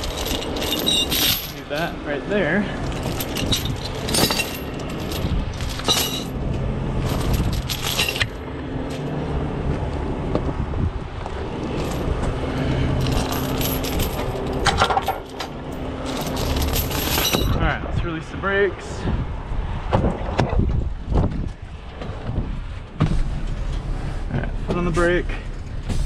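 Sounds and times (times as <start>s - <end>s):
heavy chains clanking: 0.0s - 9.6s, 11.2s - 18.3s.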